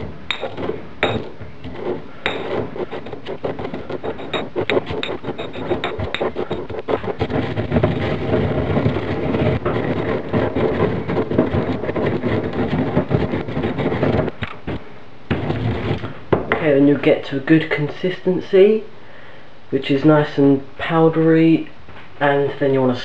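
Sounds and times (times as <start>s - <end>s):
stone-on-stone knocks: 0.0s - 14.3s
coffee beans ground in stone mortar: 0.0s - 16.2s.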